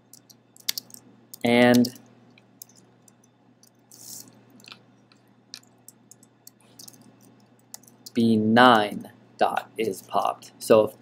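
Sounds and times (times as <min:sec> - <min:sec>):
keyboard typing clicks: 0:00.1 - 0:02.0, 0:05.6 - 0:08.2
soft hiss: 0:00.6 - 0:11.0.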